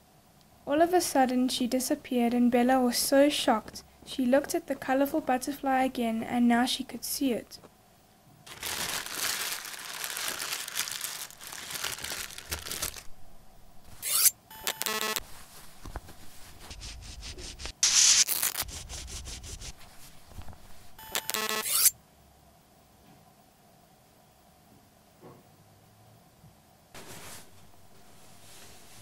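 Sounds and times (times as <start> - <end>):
cloth rustling between hands: 8.5 - 13.1, 15.2 - 17.8, 27.0 - 29.0
buzzy scrapes: 13.9 - 21.9
loud hiss: 17.4 - 19.8.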